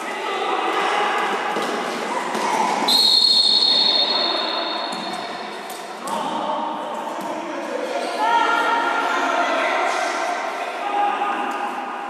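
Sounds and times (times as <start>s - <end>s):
referee's whistle blast: 2.9s - 5.0s.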